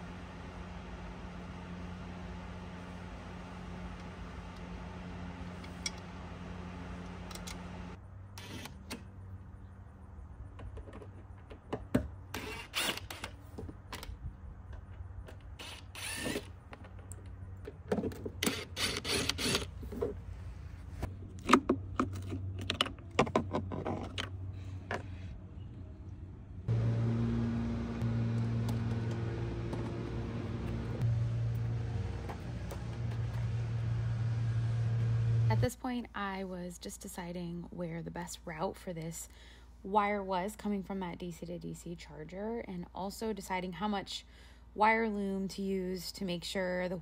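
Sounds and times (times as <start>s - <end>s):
steady low hum: 24.5s - 40.0s.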